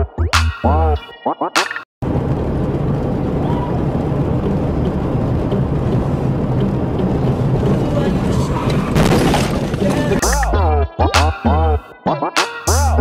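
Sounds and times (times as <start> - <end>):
car interior road rumble: 2.0 - 10.2.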